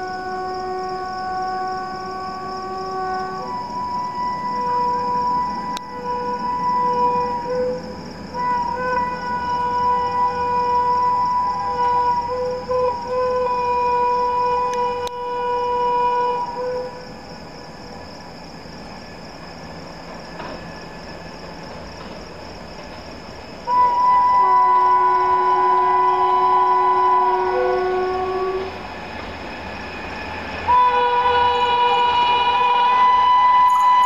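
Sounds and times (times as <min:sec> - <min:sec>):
train horn blasts: 0:00.0 - 0:17.2, 0:23.6 - 0:29.0, 0:30.5 - 0:34.0.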